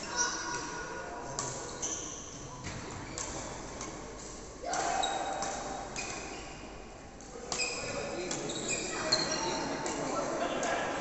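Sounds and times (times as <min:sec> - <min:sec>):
rackets striking shuttlecock: 0:03.2 - 0:06.3
sneakers squeaking on court: 0:07.5 - 0:09.8.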